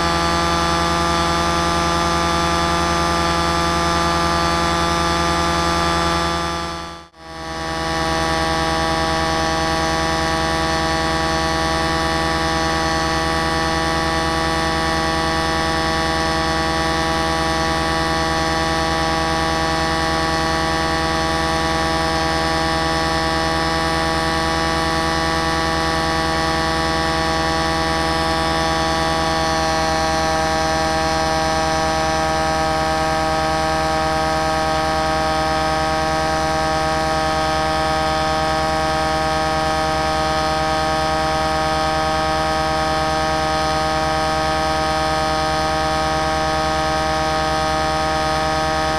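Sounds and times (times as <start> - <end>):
small aircraft propeller drone: 0.0 - 48.9.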